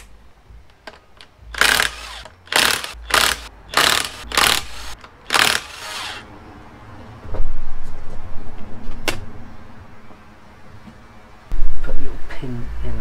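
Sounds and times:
impact wrench rattling: 1.6 - 6.2.

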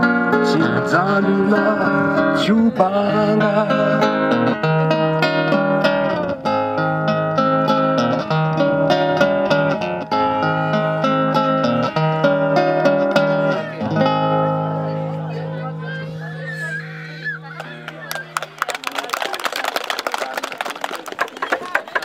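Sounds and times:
acoustic guitar playing: 0.0 - 18.6
person singing: 0.5 - 4.5.

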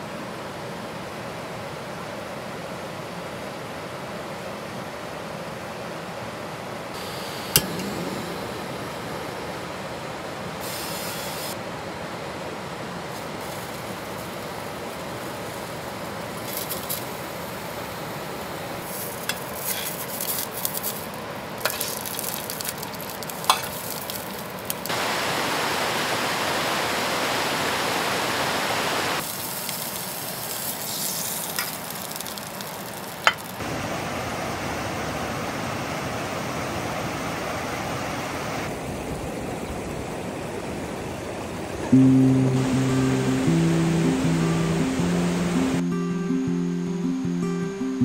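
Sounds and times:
sausages sizzling in a pot: 18.8 - 24.9, 29.2 - 33.6
metal tongs clicking against pot: 23.5 - 23.8.

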